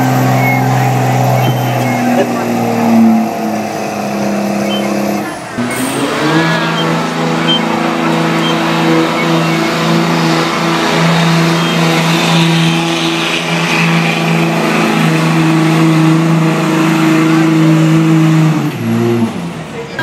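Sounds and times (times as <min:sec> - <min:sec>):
truck engine at high revs: 0:00.0 - 0:20.0.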